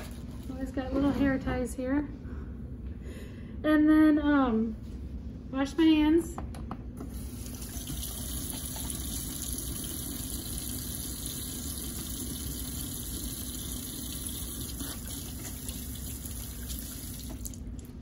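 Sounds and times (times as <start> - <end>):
faucet running into metal sink: 7.2 - 17.6.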